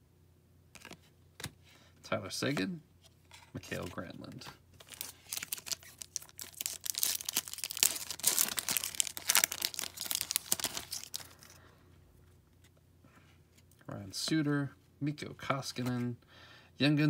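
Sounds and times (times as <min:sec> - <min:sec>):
wrapper crinkling and tearing: 0:04.8 - 0:11.6.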